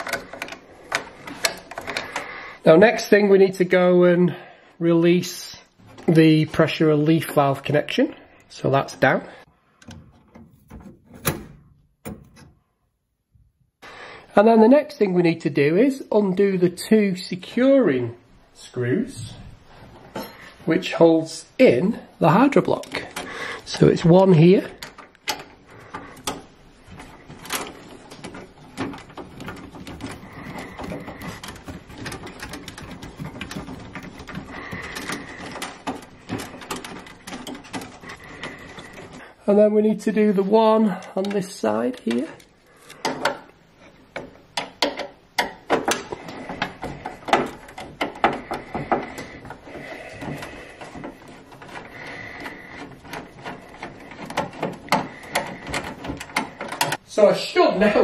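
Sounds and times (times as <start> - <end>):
screwdriver scraping and rattling: 0.0 - 2.3, 9.8 - 12.6, 22.2 - 39.3, 40.2 - 57.1
tool clicking on metal parts: 24.7 - 39.2, 41.0 - 57.0.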